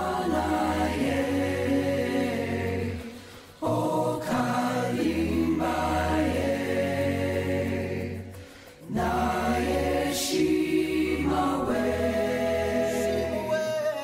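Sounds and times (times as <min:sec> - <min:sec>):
chant-like voices: 0:00.0 - 0:14.0.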